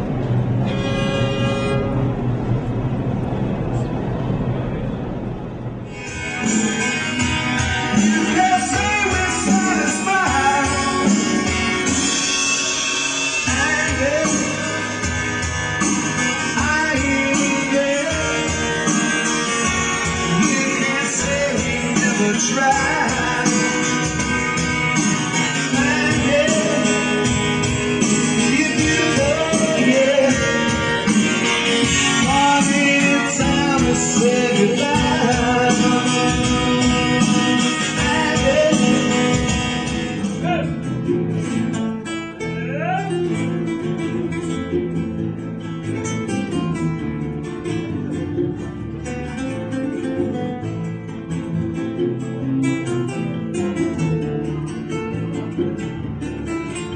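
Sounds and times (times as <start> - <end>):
acoustic guitar: 0.0 - 56.9
classical guitars playing flamenco: 5.9 - 56.9
man singing: 7.9 - 15.4, 16.2 - 19.3, 20.0 - 40.8.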